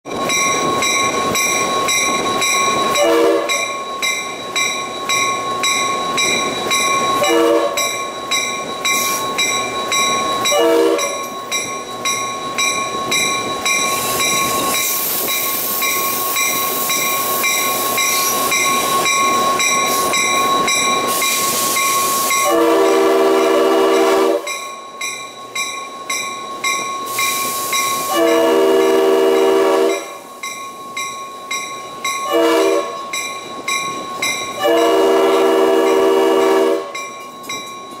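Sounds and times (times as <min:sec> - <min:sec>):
train running on tracks: 0:00.0 - 0:38.0
rail joints clicking: 0:00.2 - 0:22.5, 0:36.8 - 0:38.0
locomotive horn blasts: 0:03.0 - 0:03.7, 0:07.2 - 0:07.9, 0:10.5 - 0:11.2, 0:22.4 - 0:24.5, 0:28.1 - 0:30.1, 0:32.3 - 0:33.0, 0:34.6 - 0:36.9.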